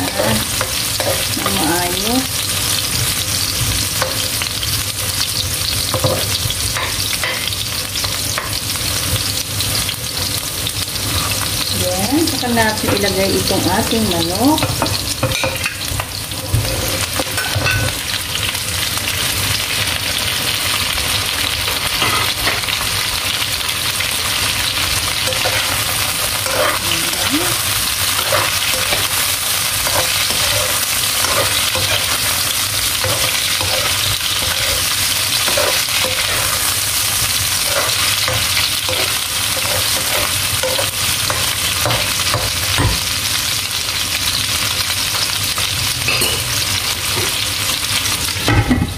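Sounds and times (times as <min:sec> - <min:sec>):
chicken sizzling in hot oil: 0:00.0 - 0:48.9
spatula scraping a wok: 0:15.3 - 0:17.9, 0:25.1 - 0:42.8.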